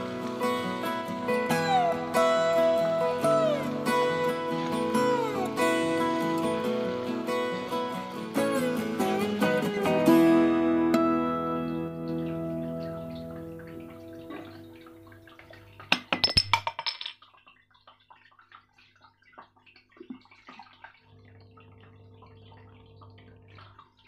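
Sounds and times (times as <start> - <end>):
strummed acoustic guitar music: 0.0 - 15.0.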